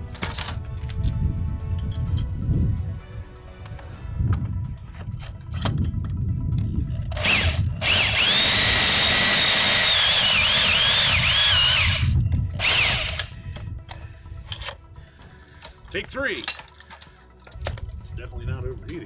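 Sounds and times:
power drill running: 7.2 - 13.4.

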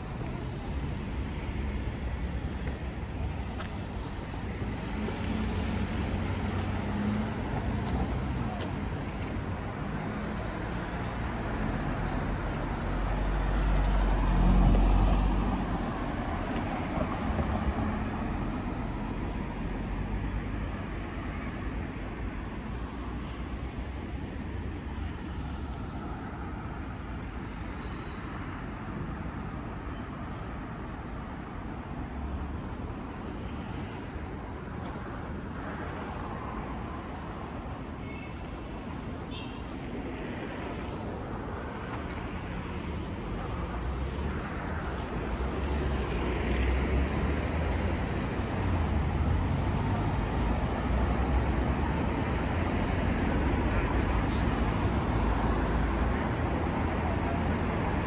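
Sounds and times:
distant traffic noise: 0.0 - 58.0.

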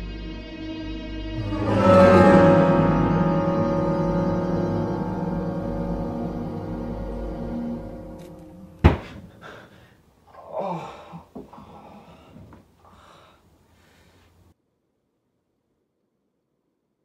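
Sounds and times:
eerie music: 0.0 - 9.5
man breathing heavily and gasping: 9.0 - 14.2.

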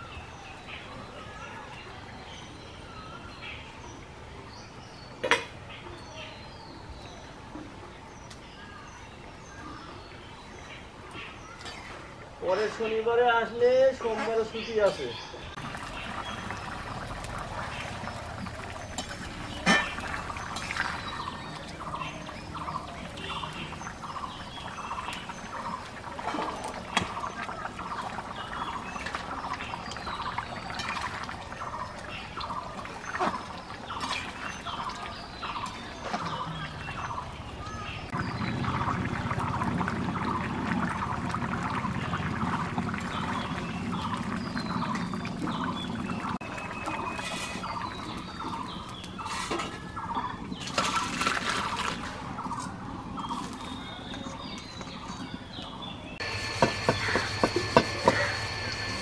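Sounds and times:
curry bubbling at a boil: 15.6 - 59.0.

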